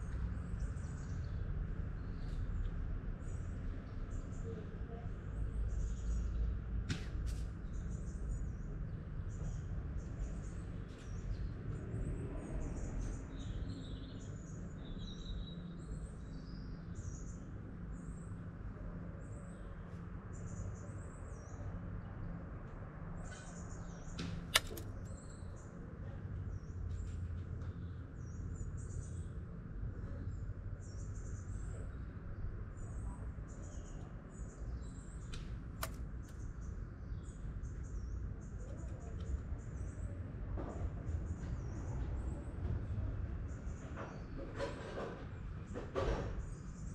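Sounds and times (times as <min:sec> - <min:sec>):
sharp quiet rifle clicks: 0:24.5 - 0:25.0, 0:35.4 - 0:36.4.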